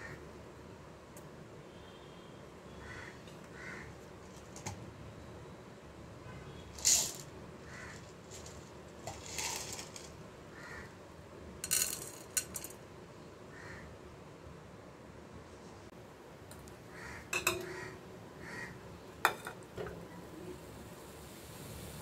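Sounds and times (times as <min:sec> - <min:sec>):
peppercorns clicking on metal pot: 0:06.8 - 0:10.1, 0:11.6 - 0:12.7.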